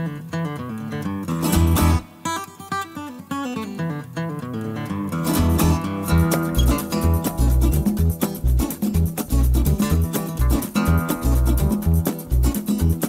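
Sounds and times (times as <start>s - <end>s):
acoustic guitar plucked notes: 0.0s - 13.0s
deep bass notes: 5.6s - 13.0s.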